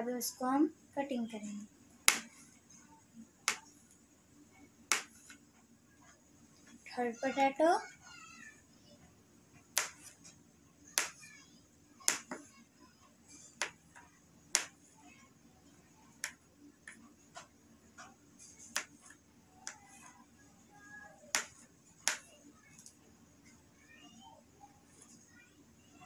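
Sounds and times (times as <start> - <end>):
knife tapping cutting board: 12.1 - 12.4, 21.3 - 22.2.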